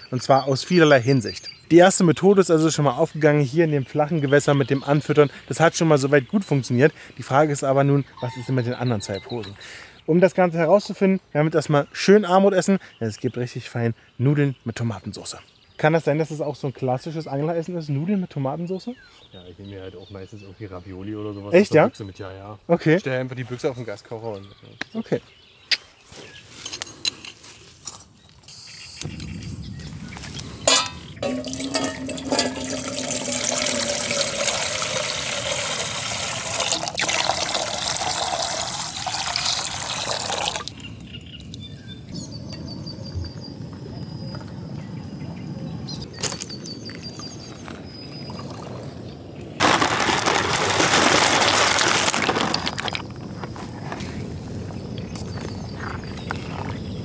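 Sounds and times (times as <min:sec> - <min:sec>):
pasta splashing into water: 0:30.7 - 0:40.7, 0:49.6 - 0:53.0
water pouring into metal pot: 0:30.7 - 0:40.9, 0:49.6 - 0:53.0.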